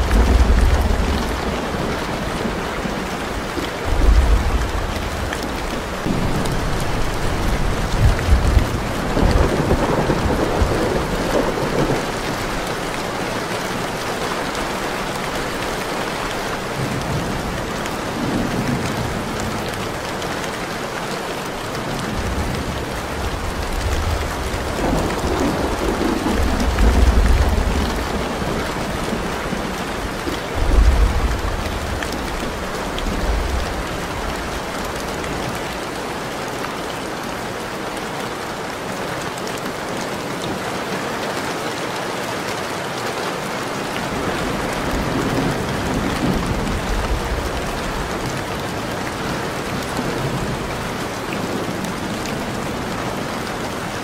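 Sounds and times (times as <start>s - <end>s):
thunder rumbling: 0.0s - 14.0s, 22.0s - 35.9s
heavy rain: 0.0s - 54.0s.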